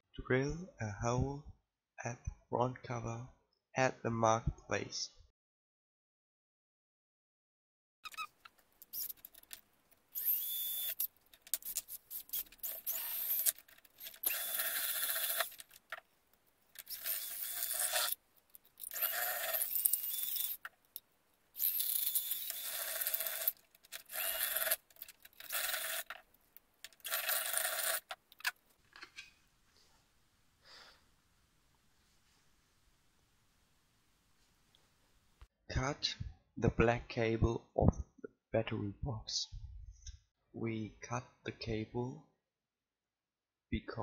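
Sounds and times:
drill bit cutting plastic: 0:08.1 - 0:16.0, 0:16.8 - 0:18.2, 0:18.8 - 0:20.7, 0:21.6 - 0:26.2, 0:26.9 - 0:28.6
cordless drill whining: 0:10.1 - 0:15.7, 0:16.8 - 0:18.2, 0:18.8 - 0:20.6, 0:21.6 - 0:24.8, 0:25.4 - 0:26.1, 0:27.0 - 0:28.1.

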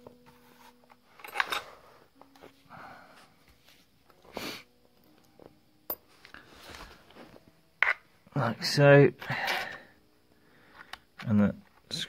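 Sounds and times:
person sniffing: 0:04.3 - 0:04.7.

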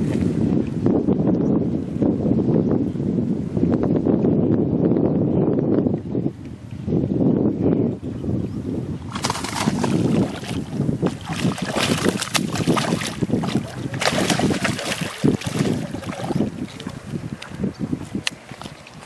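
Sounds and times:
wind rumbling on microphone: 0:00.0 - 0:19.0
fish splashing at water surface: 0:09.1 - 0:17.0.

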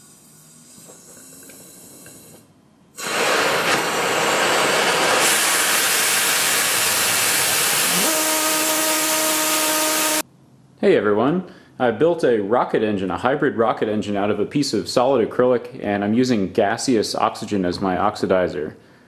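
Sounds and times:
faint hiss of oxygen flow: 0:00.0 - 0:10.3
rocket engine exhaust roaring hiss: 0:03.0 - 0:10.2.

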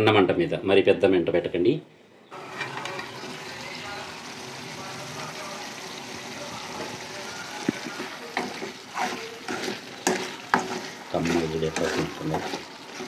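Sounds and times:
curry sizzling in a pan: 0:02.3 - 0:13.0
steel spatula scraping a pan: 0:02.4 - 0:03.6, 0:07.8 - 0:13.0.

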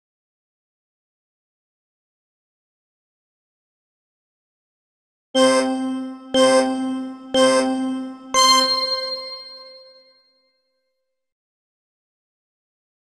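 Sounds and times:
timer ding tones: 0:05.4 - 0:10.0.

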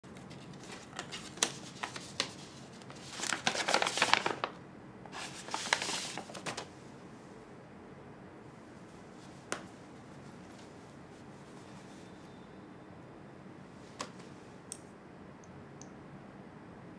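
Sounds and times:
paper rustling: 0:00.1 - 0:06.7
paper envelope clicks: 0:00.2 - 0:06.7.

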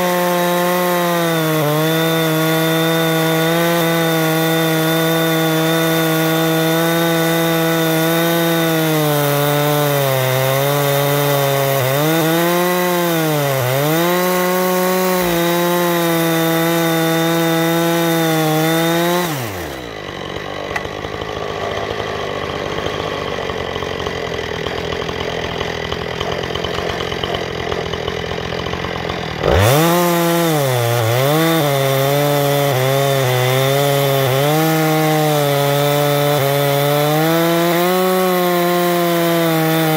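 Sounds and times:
chainsaw cutting log: 0:00.0 - 0:39.9.

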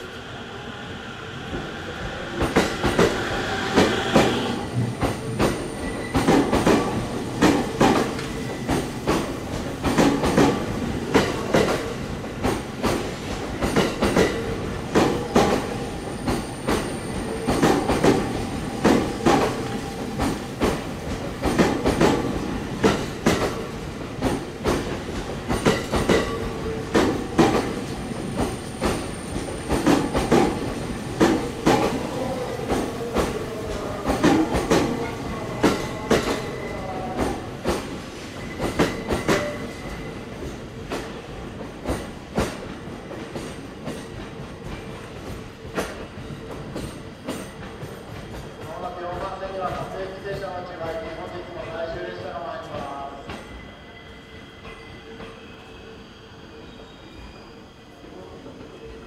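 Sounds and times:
train wheels clicking on rail joints: 0:02.4 - 0:32.0, 0:37.2 - 0:51.8.

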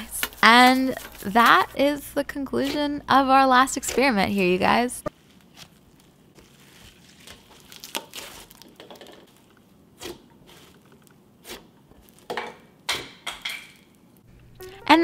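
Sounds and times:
slime squishing crackly: 0:05.1 - 0:12.3.

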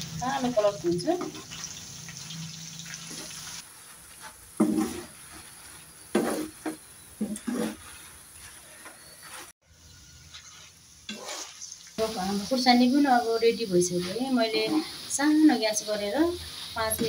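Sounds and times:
oil sizzling: 0:00.0 - 0:17.0
spoon scraping pan: 0:04.1 - 0:09.5, 0:10.2 - 0:11.8.

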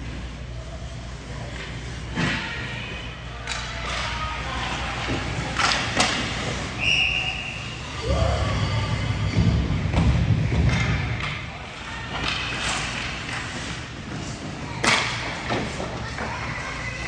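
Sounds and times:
thuds echoing in a hall: 0:08.0 - 0:12.2.

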